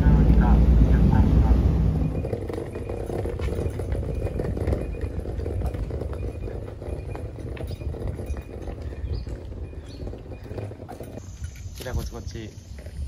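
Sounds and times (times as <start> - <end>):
suitcase wheels rolling on asphalt: 0.0 - 13.0.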